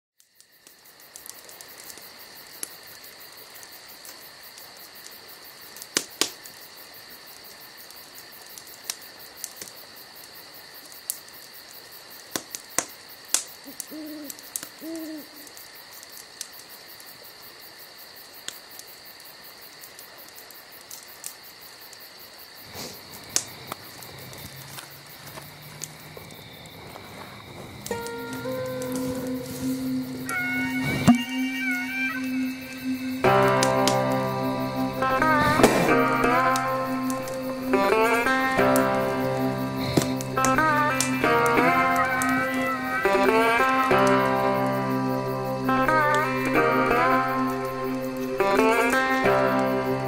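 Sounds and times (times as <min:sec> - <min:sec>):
insects trilling: 0:00.2 - 0:50.0
sharp pops and clicks: 0:05.8 - 0:06.6, 0:12.2 - 0:16.7, 0:33.2 - 0:42.4
owl hooting: 0:13.6 - 0:15.5, 0:28.0 - 0:33.6.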